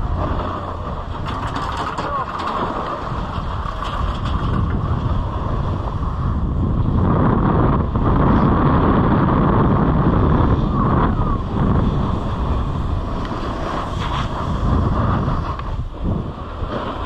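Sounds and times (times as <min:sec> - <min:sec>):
snowboard scraping over snow: 0:00.0 - 0:17.0
wind buffeting microphone: 0:00.0 - 0:17.0.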